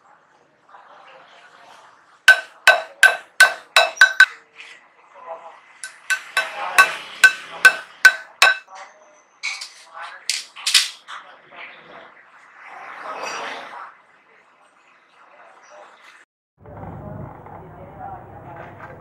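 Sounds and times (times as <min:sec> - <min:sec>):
hammer striking steel pin: 0:02.3 - 0:04.3, 0:05.8 - 0:08.6.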